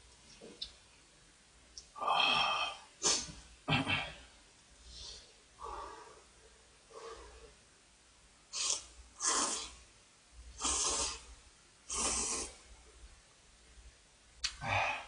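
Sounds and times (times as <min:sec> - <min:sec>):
person slurping noodles: 0:08.6 - 0:09.8, 0:10.6 - 0:11.3, 0:11.9 - 0:12.6.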